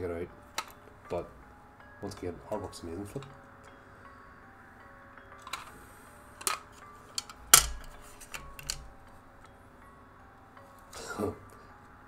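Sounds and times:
cassette case clicks and taps: 0:06.4 - 0:08.9.

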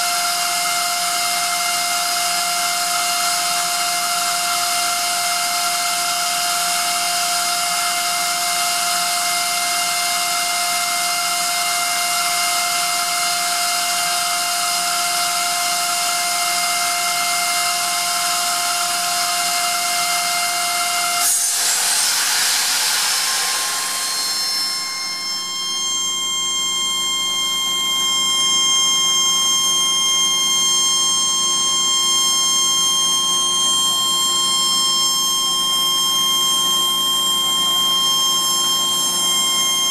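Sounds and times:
screw compressor whining: 0:16.8 - 0:39.9
compressed air hiss: 0:21.2 - 0:24.8.

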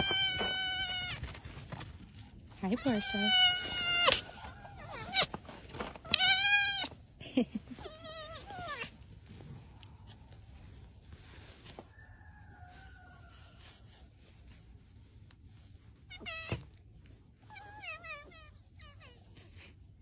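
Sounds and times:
fox whining: 0:00.0 - 0:01.8, 0:02.7 - 0:07.0, 0:07.7 - 0:09.0.

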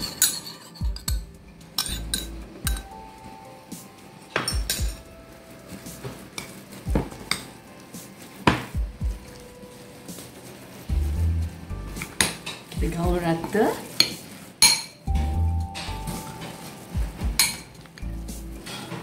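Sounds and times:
spoon clinking against glass bowl: 0:01.8 - 0:02.9, 0:14.0 - 0:15.1, 0:17.4 - 0:17.8.

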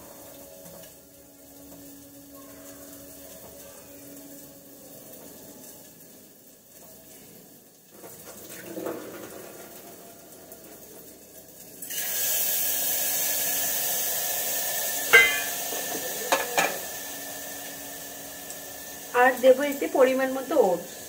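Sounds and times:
food sizzling in hot pan: 0:00.0 - 0:21.0
water running at sink: 0:00.0 - 0:21.0
metal clinks: 0:15.1 - 0:15.6.

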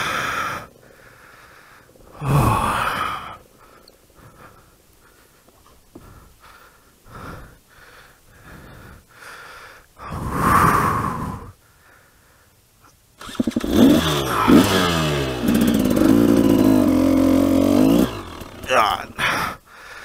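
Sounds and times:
person gasping: 0:00.0 - 0:12.5, 0:17.8 - 0:20.0
person panting: 0:00.0 - 0:12.7, 0:19.2 - 0:20.0.

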